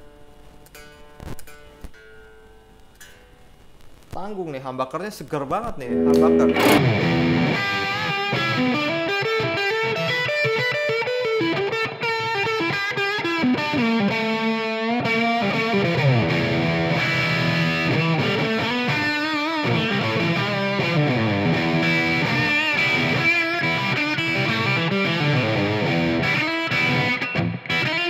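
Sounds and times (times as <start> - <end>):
distorted electric guitar lead: 5.8 - 28.0.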